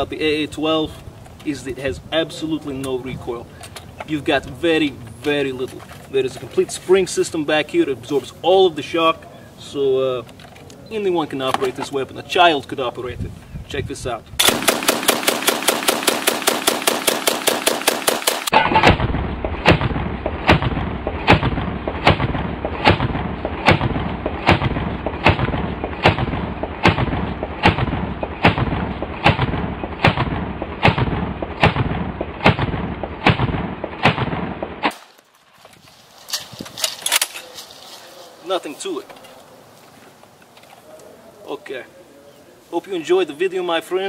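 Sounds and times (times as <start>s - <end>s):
automatic shotgun firing: 14.4s - 35.1s
deep slowed booms: 18.8s - 34.7s.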